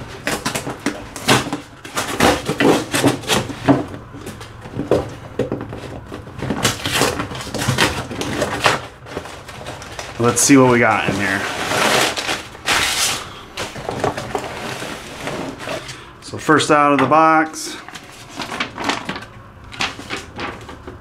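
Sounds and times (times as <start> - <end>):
knife cutting cardboard and tape: 0.2 - 3.8, 6.4 - 9.2, 11.0 - 13.3.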